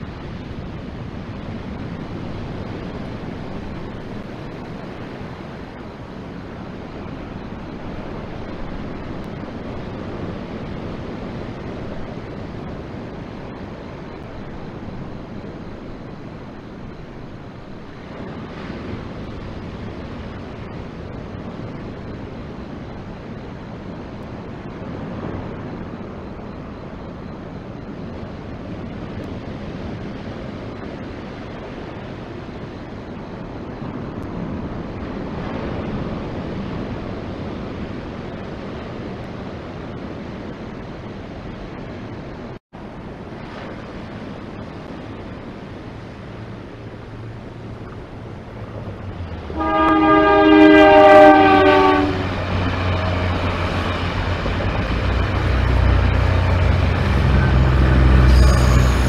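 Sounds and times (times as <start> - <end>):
wind on microphone: 0.0 - 59.0
surf breaking: 43.2 - 59.0
train horn: 49.5 - 59.0.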